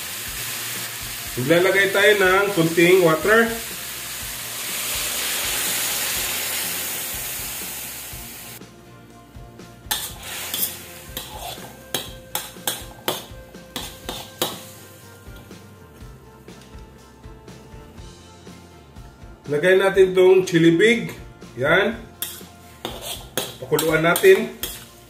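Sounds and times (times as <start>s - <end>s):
water sizzling in hot wok: 0.0s - 8.6s, 9.9s - 15.3s, 22.2s - 25.0s
metal spatula scraping wok: 9.8s - 14.8s, 22.2s - 25.0s.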